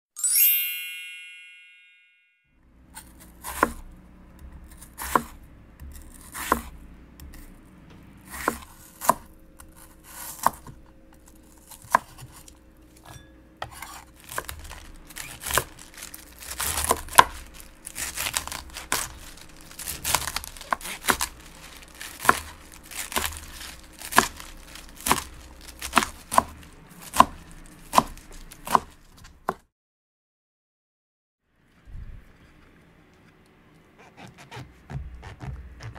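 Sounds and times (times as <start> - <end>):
knife cutting cabbage on board: 3.0 - 7.6, 8.2 - 29.6, 34.0 - 35.9.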